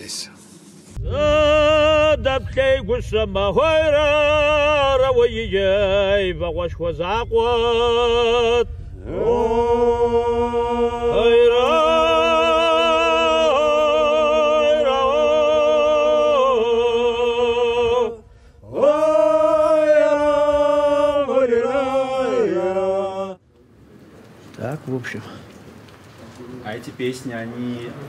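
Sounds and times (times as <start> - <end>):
men singing unaccompanied folk song: 1.0 - 23.4.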